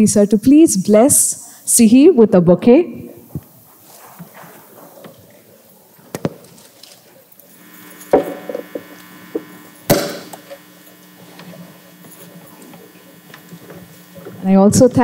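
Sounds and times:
faint low steady hum: 0:07.5 - 0:15.0.

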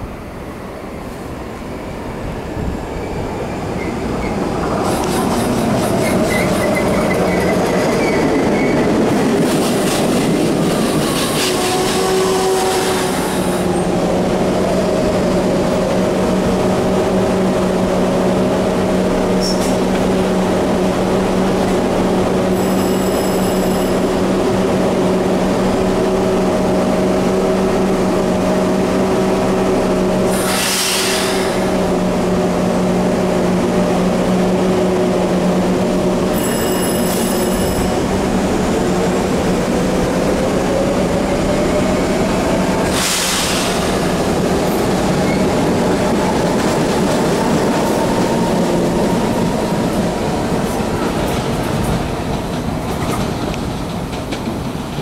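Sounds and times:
train rolling to a stop: 0:02.4 - 0:55.0
train wheel squeal: 0:06.0 - 0:08.9, 0:19.4 - 0:19.8, 0:22.5 - 0:24.2, 0:30.3 - 0:31.7, 0:36.3 - 0:38.0, 0:45.2 - 0:45.5
air hiss: 0:30.3 - 0:31.7.

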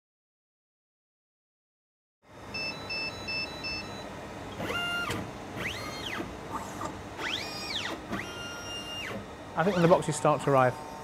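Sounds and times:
short electronic beeps: 0:02.6 - 0:04.0
robot arm motor whining: 0:04.5 - 0:11.0.

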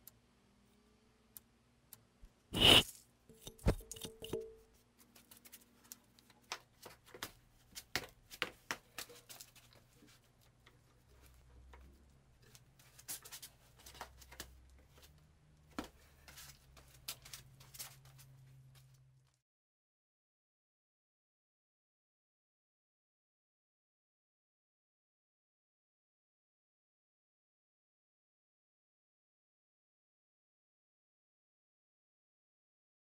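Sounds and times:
hand brushing chips off steel: 0:02.6 - 0:04.0
metal chips clicking and tapping: 0:03.3 - 0:04.7.

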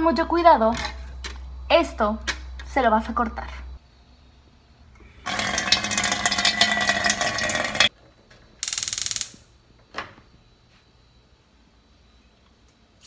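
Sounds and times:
faucet water into steel sink: 0:05.3 - 0:07.9.

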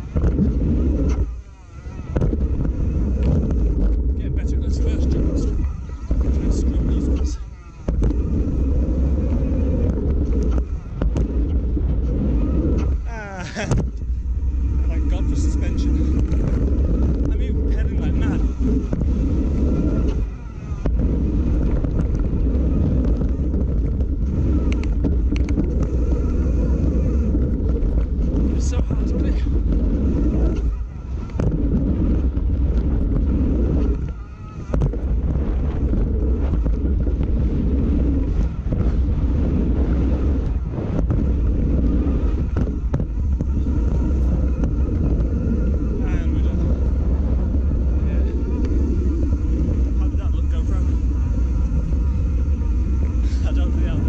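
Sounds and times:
bike rattling: 0:00.0 - 0:54.0
bike tyre noise: 0:00.0 - 0:54.0
wind buffeting microphone: 0:00.0 - 0:54.0
bike knocking over bumps: 0:18.2 - 0:37.5, 0:40.3 - 0:45.8.

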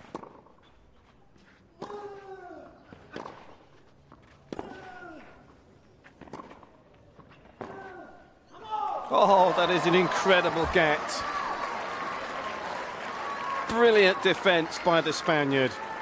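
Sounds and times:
racket striking tennis ball: 0:03.0 - 0:03.6, 0:04.5 - 0:04.9.

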